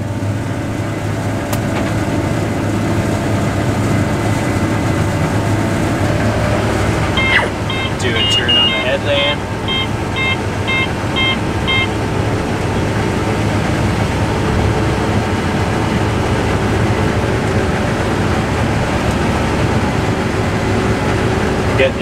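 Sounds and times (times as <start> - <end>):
combine harvester engine drone: 0.0 - 22.0
electronic beeps: 7.2 - 12.0.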